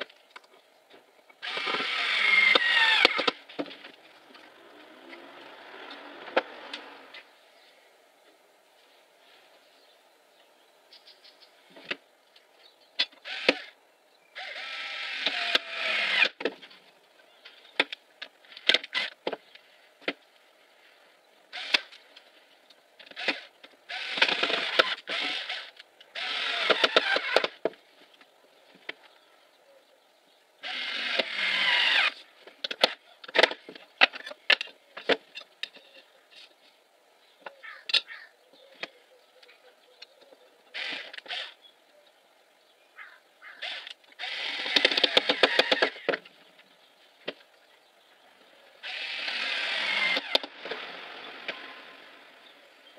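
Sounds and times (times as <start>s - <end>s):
wooden parts clicking and knocking: 32.4s - 35.9s, 43.7s - 47.5s.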